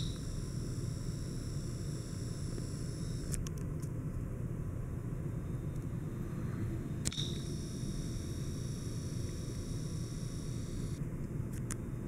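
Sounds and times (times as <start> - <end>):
small clicks: 0.0 - 3.9, 7.0 - 11.8
ceiling fan humming: 0.0 - 12.0
sharp click: 7.0 - 7.6.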